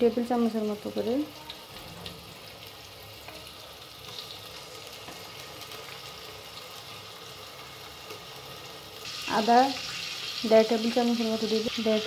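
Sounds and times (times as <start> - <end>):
onions frying in oil: 0.0 - 12.0.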